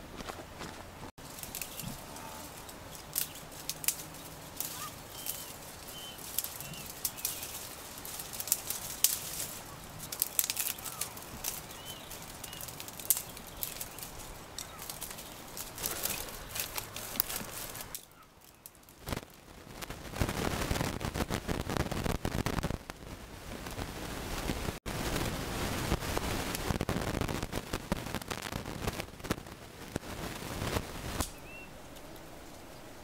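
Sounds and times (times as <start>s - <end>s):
branches rustling: 0.0s - 33.0s
dry twigs snapping: 1.2s - 19.4s, 31.2s - 32.3s
faint bird chirps: 4.8s - 7.6s, 10.7s - 15.4s, 31.3s - 31.8s.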